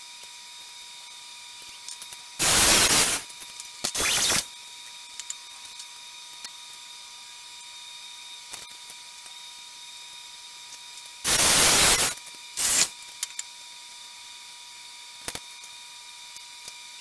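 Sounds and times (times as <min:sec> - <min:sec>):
power saw cutting wood: 0:02.4 - 0:03.2, 0:03.9 - 0:04.5, 0:11.3 - 0:12.9.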